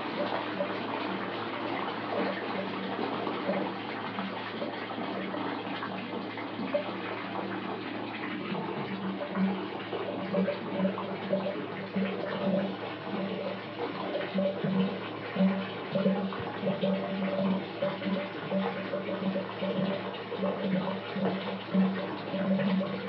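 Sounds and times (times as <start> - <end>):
tap water filling a bathtub: 0.0 - 23.0.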